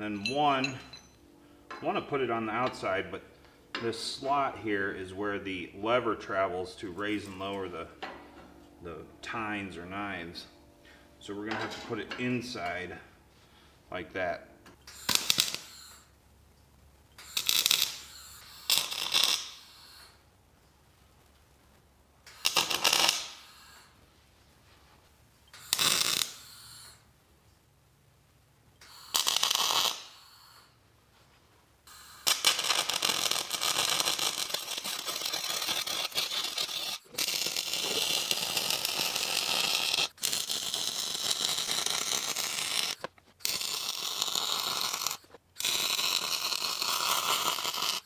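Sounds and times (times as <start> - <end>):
short tack welds: 14.8 - 16.1, 17.1 - 20.2, 22.2 - 24.0, 25.5 - 27.0, 28.8 - 30.8, 31.8 - 48.0
welder arc crackling: 14.8 - 16.1, 17.2 - 20.2, 22.2 - 23.9, 25.6 - 27.0, 28.8 - 30.6, 31.9 - 48.0.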